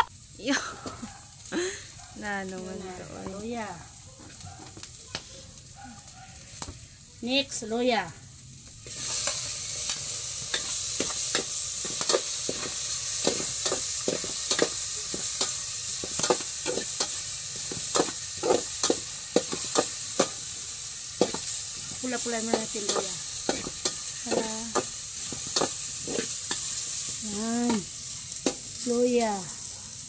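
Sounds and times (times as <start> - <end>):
ginger sizzling in hot oil: 0.0 - 30.0
metal spoon scraping a pot: 22.5 - 26.7.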